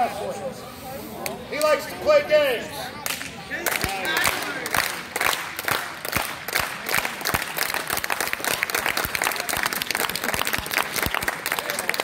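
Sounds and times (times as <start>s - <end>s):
small crowd applauding: 3.0s - 12.0s.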